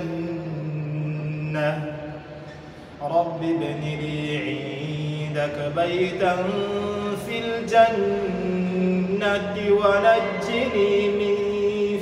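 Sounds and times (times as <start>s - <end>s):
man chanting melodic recitation: 3.0s - 12.0s.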